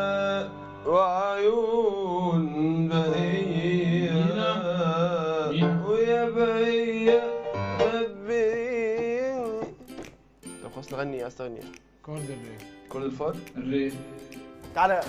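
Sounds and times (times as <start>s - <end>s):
man singing unaccompanied: 0.0s - 15.0s.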